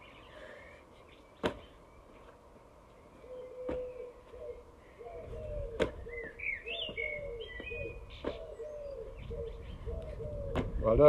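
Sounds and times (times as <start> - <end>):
pigeon cooing: 3.2 - 10.8.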